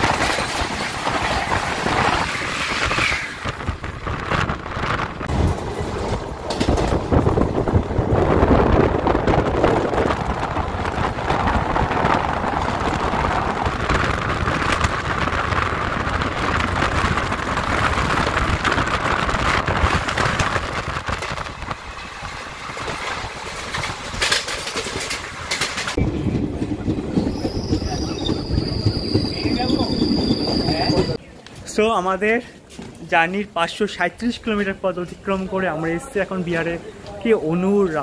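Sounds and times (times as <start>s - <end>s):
wind buffeting microphone: 0.0s - 24.3s, 25.2s - 31.2s
train wheel rumble: 0.0s - 31.2s.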